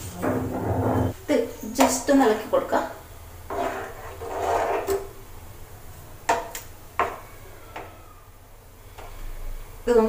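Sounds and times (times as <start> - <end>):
spatula stirring in frying pan: 3.4 - 5.1.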